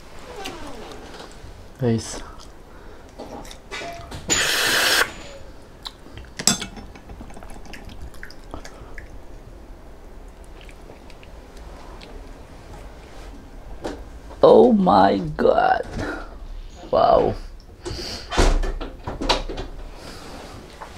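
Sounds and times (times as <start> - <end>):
loud slurp: 4.3 - 5.2
soft wet chewing: 7.7 - 9.4, 10.2 - 12.4.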